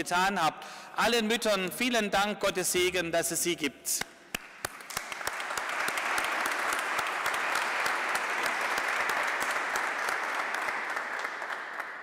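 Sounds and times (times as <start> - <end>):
crowd applauding: 4.3 - 12.0.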